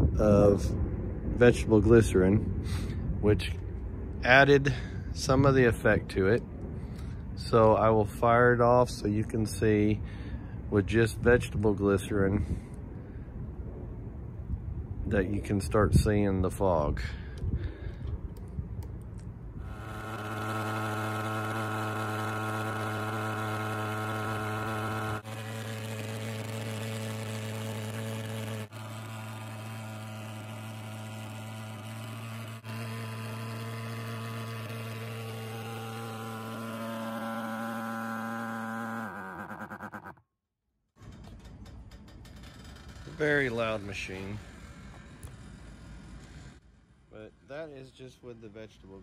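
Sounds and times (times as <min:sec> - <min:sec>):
fogger engine buzzing drone: 0:18.8 - 0:40.2.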